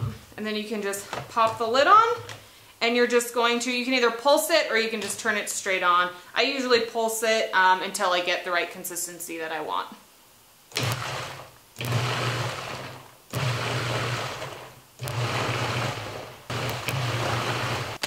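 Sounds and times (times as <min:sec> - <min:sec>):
food processor pulsing: 0:10.7 - 0:18.0.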